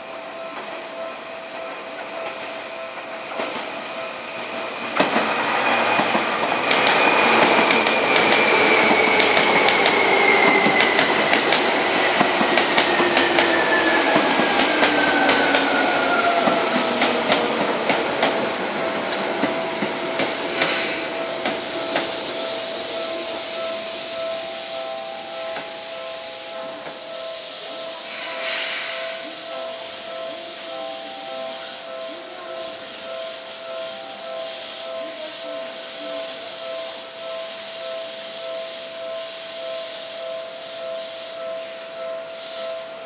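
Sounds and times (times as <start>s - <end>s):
train wheels clicking over rail joints: 4.4s - 24.1s.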